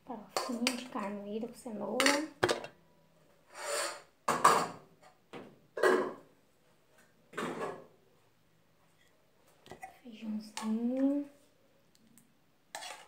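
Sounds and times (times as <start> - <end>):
metal pots scraping and clanking: 3.5 - 4.8, 12.7 - 13.0.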